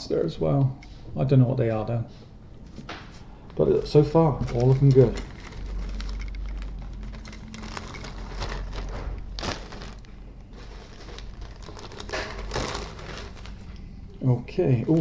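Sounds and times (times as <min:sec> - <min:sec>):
low steady rumble: 0:03.2 - 0:15.0
plastic parts and bags rustling: 0:03.5 - 0:15.0.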